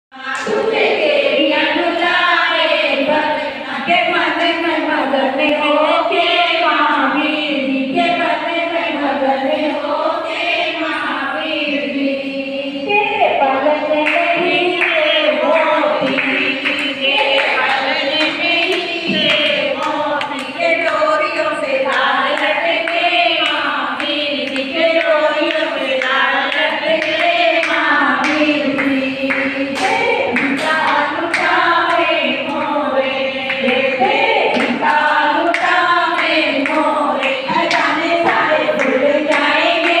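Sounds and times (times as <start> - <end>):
women singing: 0.1 - 40.0
hand claps: 14.0 - 32.8, 33.5 - 40.0.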